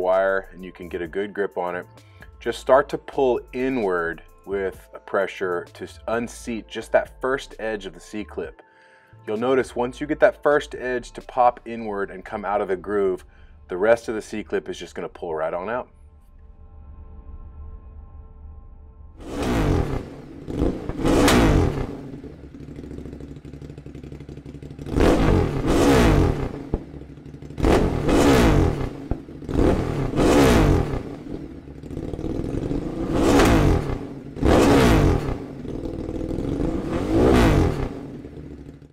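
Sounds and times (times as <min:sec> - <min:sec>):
motorcycle engine revving: 0:19.2 - 0:38.9.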